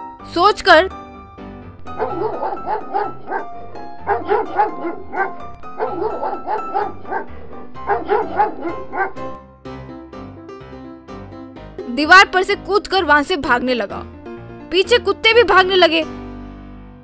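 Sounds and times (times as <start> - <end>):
background music: 0.0 - 17.0
dogs barking: 1.9 - 9.4.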